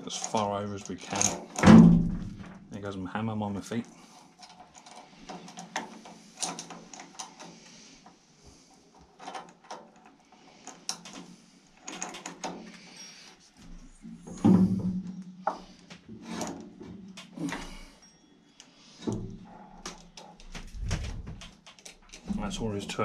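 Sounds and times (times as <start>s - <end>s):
chain clinking against metal sprocket: 0.0s - 1.6s.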